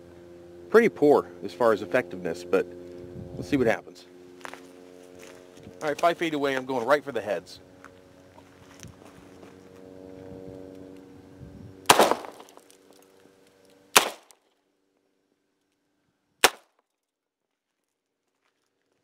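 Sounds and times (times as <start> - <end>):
revolver shots: 11.9 - 12.5.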